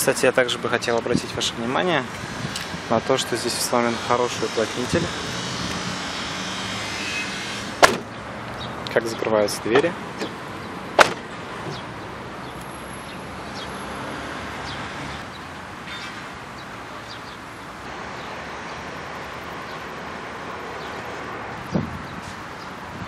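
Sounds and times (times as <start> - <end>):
outdoor background noise: 0.0 - 23.0
car door shutting: 7.8 - 8.1, 11.0 - 11.8.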